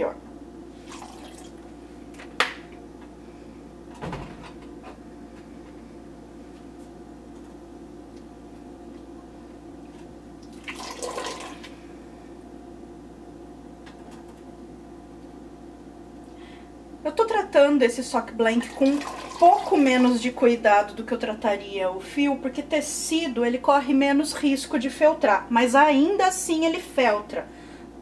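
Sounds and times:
steady low hum: 0.0s - 28.0s
water sloshing in a pot: 0.8s - 1.7s, 10.4s - 11.8s, 18.6s - 20.2s.

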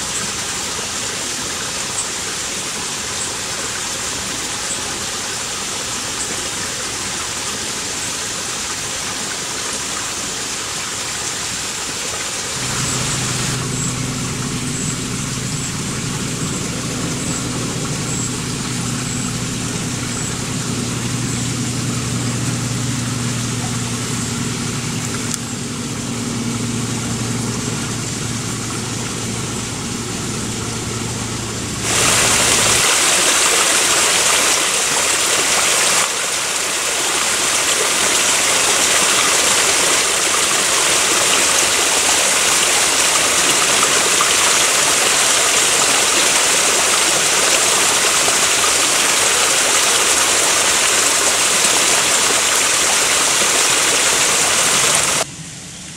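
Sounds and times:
brook running over rocks: 0.0s - 55.3s
steady low hum: 12.5s - 32.9s.

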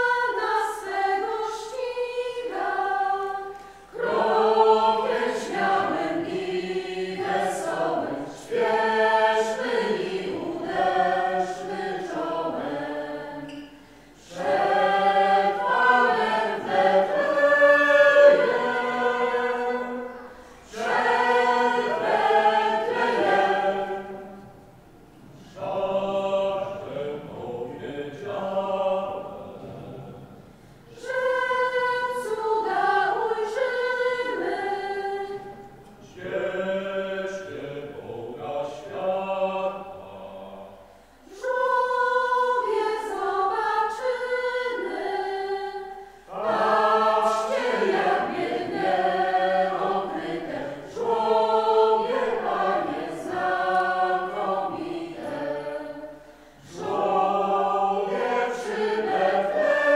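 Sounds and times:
mixed choir singing a hymn: 0.0s - 59.9s.

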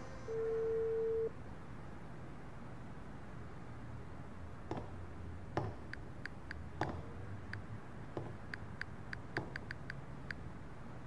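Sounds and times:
soft knocks: 8.2s - 8.4s
smartphone keyboard clicks: 8.2s - 10.4s.

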